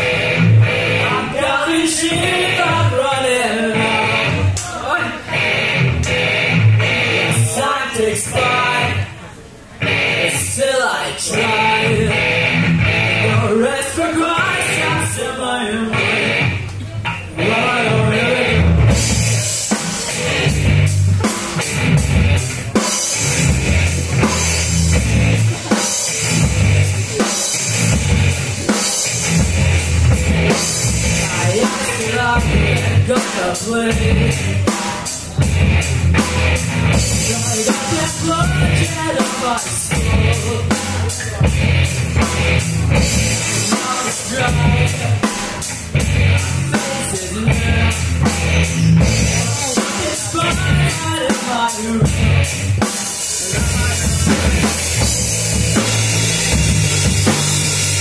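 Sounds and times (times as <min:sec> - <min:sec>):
electric bass: 0:00.0 - 0:04.6, 0:05.2 - 0:09.1, 0:09.7 - 0:58.0
drum kit: 0:00.0 - 0:07.6, 0:11.2 - 0:15.3, 0:15.9 - 0:58.0
electric guitar: 0:00.0 - 0:58.0
person singing: 0:00.8 - 0:05.5, 0:07.0 - 0:09.3, 0:09.9 - 0:20.6, 0:30.5 - 0:35.8, 0:36.5 - 0:41.8, 0:42.8 - 0:58.0.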